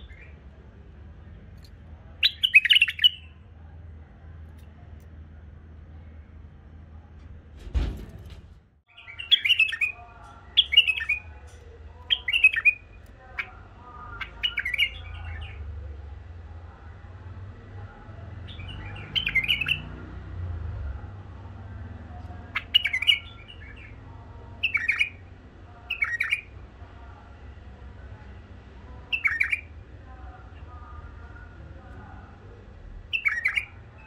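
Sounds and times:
bird singing warbled phrases: 0.0s - 0.6s, 1.2s - 3.6s, 8.9s - 16.2s, 17.8s - 20.0s, 22.3s - 26.6s, 28.9s - 29.8s, 33.0s - 34.0s.

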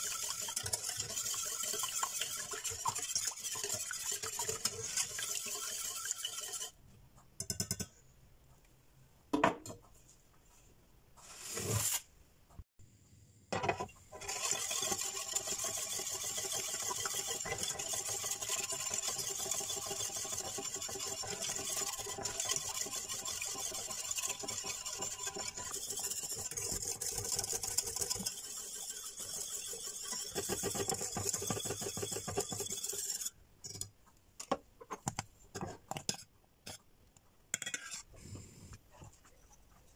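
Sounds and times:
wire whisk scraping a pan: 0.0s - 6.8s, 13.7s - 33.9s, 37.6s - 38.1s.

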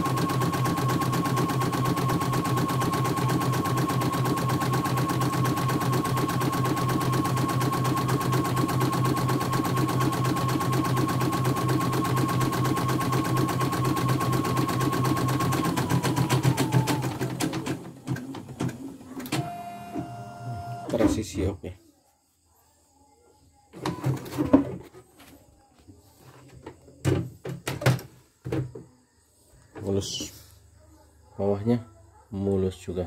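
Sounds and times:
embroidery machine stitching: 0.0s - 21.0s.

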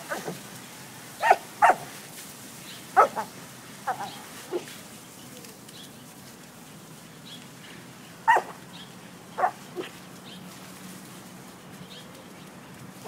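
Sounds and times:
dog barking: 1.2s - 1.9s, 3.0s - 3.3s, 8.3s - 8.6s, 9.4s - 9.9s.

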